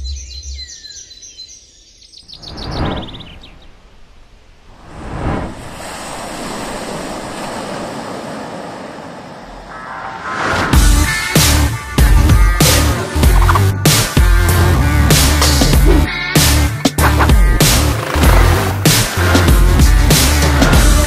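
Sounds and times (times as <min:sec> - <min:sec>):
birds chirping: 0:00.0 - 0:04.5
steady rushing noise: 0:02.6 - 0:10.8.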